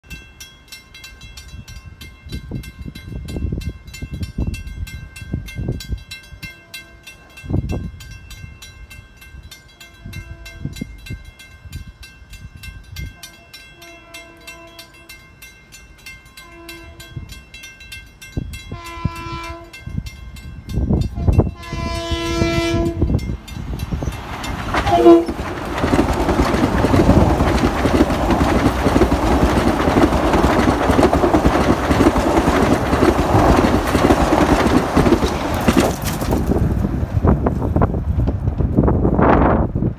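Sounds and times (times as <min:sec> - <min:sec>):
crossing bell dinging: 0:00.0 - 0:35.1
train passing with rumble: 0:00.1 - 0:39.9
train horn blast: 0:09.9 - 0:10.9, 0:13.2 - 0:15.0, 0:16.4 - 0:17.2, 0:18.7 - 0:19.8, 0:21.1 - 0:23.2, 0:24.8 - 0:25.4.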